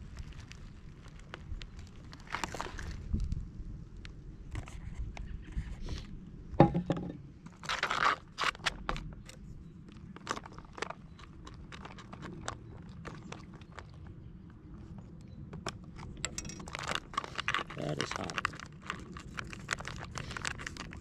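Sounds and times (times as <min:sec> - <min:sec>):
food pouch crinkling: 0:16.0 - 0:21.0.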